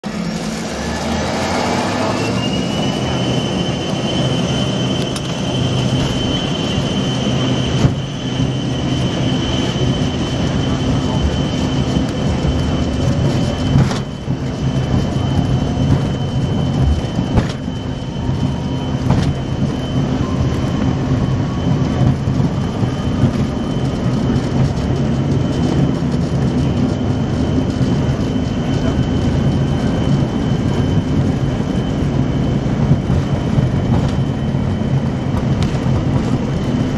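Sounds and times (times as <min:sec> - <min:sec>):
jet engine fan whine: 0:00.0 - 0:36.9
loud rumble: 0:00.0 - 0:36.9
wheels thumping on runway: 0:15.8 - 0:17.9.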